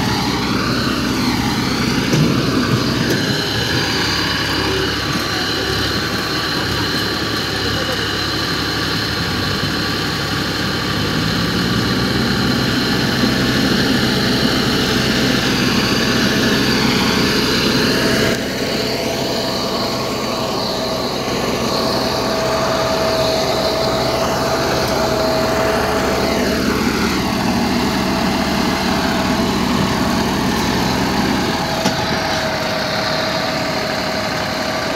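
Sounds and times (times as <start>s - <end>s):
tractor diesel engine running: 0.0s - 34.9s.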